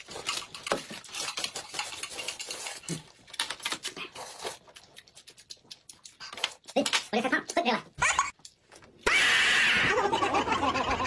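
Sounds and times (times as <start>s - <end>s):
noodles being slurped: 0.0s - 6.8s
chewing: 0.0s - 7.7s.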